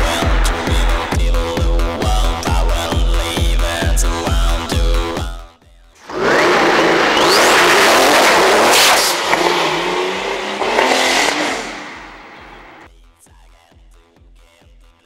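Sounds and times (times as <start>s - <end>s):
car engine revving: 0.0s - 3.5s, 6.0s - 12.9s
background music with beat: 0.0s - 6.0s.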